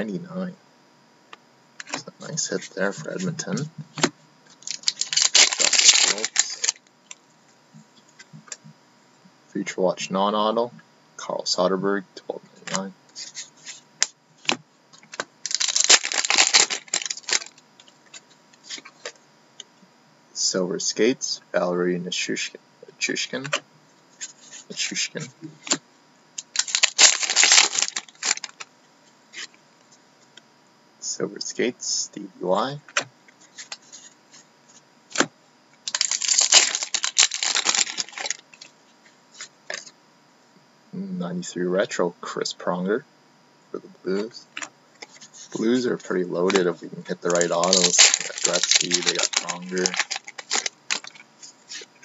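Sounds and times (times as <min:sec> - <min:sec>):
cards rustling and clicking: 0:03.0 - 0:06.8, 0:14.5 - 0:19.2, 0:26.4 - 0:28.7, 0:35.9 - 0:38.7, 0:44.6 - 0:51.9.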